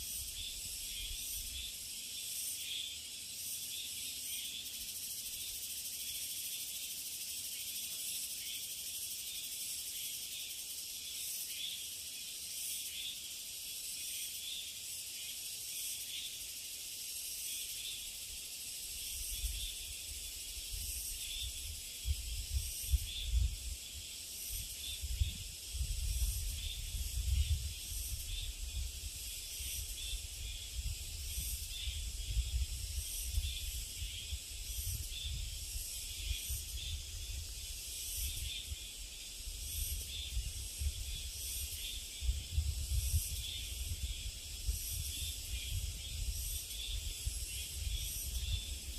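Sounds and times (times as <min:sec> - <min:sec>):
insect chorus buzzing: 0:00.0 - 0:48.9
wind buffeting the microphone: 0:20.7 - 0:24.0, 0:24.6 - 0:48.9.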